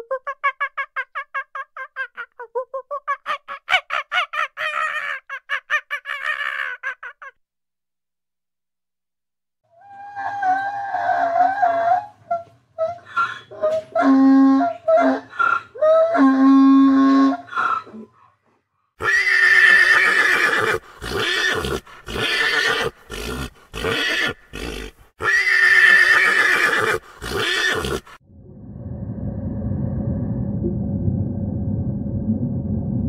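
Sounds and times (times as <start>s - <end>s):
donkey braying: 9.8s - 18.2s.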